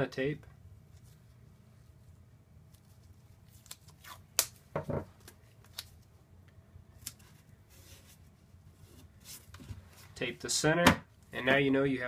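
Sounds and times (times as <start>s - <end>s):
tape tearing and rustling: 2.7s - 4.6s.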